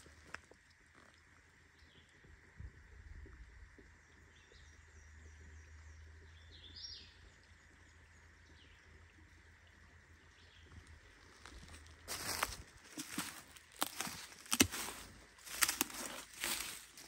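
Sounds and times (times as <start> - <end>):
birds chirping: 10.2 - 17.0.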